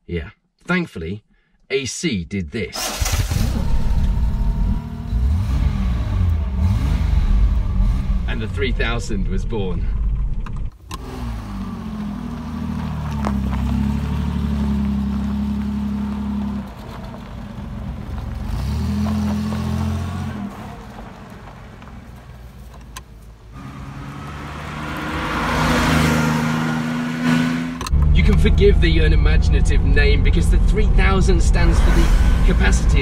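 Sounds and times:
car engine accelerating: 2.8 - 33.0
car driving past: 11.0 - 22.5, 23.5 - 30.1, 31.0 - 33.0.

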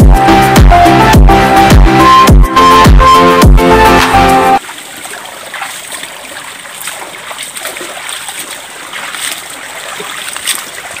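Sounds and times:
water splashes: 3.9 - 11.0
water running and trickling: 4.6 - 11.0.

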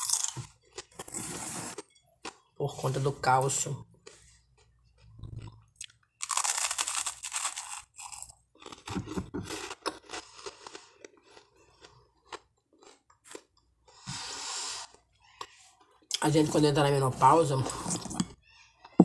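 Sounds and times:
crunching and chewing bread: 0.0 - 2.6, 3.9 - 14.0.

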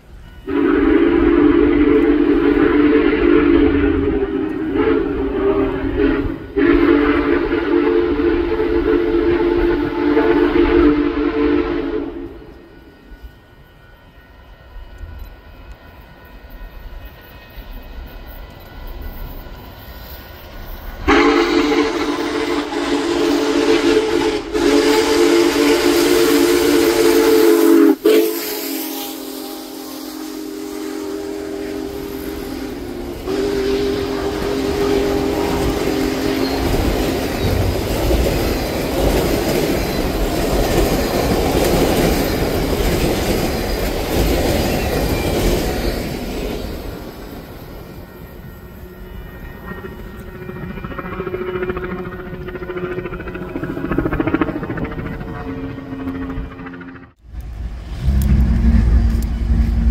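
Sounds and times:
steam locomotive chime whistle: 0.0 - 52.5
train wheel clatter: 31.9 - 59.9.

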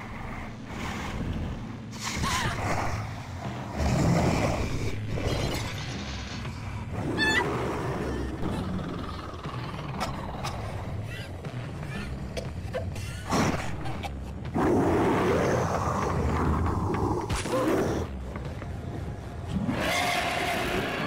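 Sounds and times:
monster growling and rumbling: 3.7 - 5.6, 6.9 - 11.1, 14.5 - 18.1.

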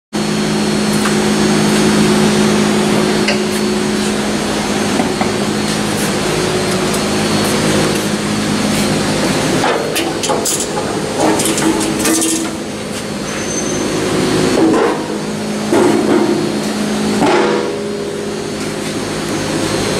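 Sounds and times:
machine hum: 0.2 - 19.9
metal clanks and knocks: 9.6 - 12.7.

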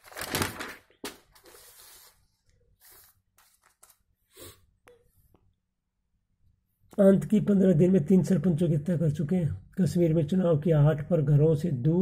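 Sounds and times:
newspaper pages rustling: 0.0 - 4.2.

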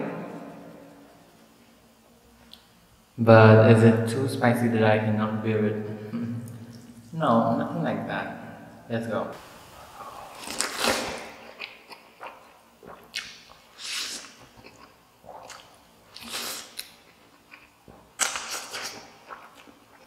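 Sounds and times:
person chewing: 9.9 - 20.0.

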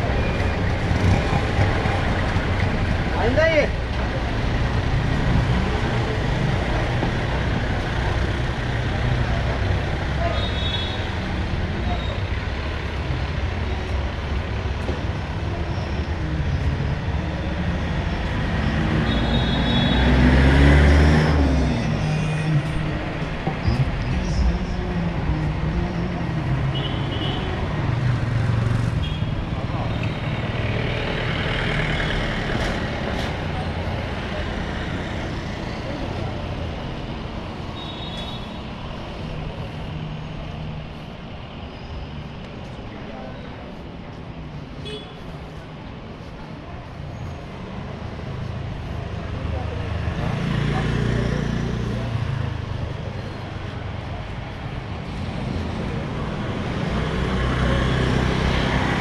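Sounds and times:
street traffic: 0.0 - 59.0
vehicle passing: 20.0 - 23.0.

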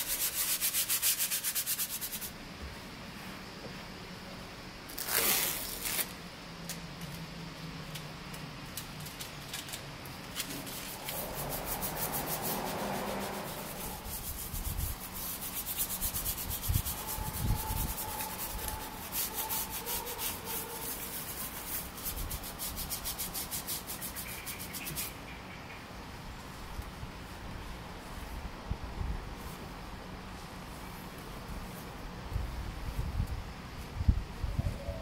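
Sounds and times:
towel scrubbing steering wheel: 10.6 - 24.0.

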